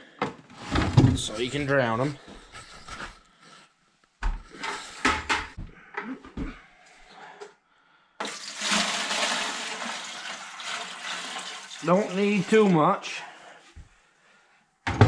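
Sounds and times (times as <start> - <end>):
water pouring into plastic bucket: 8.2 - 13.0.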